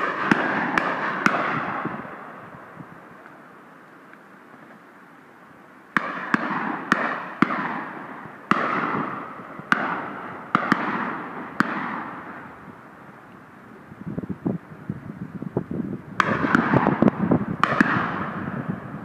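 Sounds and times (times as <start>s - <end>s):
shotgun shots: 0.0s - 2.4s, 6.0s - 12.4s, 16.2s - 18.6s
rolling echo of shots: 0.0s - 2.5s, 6.0s - 12.5s, 16.2s - 18.9s.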